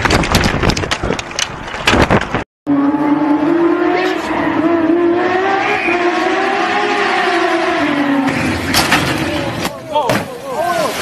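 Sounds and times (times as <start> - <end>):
rally car engine at high revs: 2.7 - 9.4
bicycle crash clatter: 8.3 - 10.4.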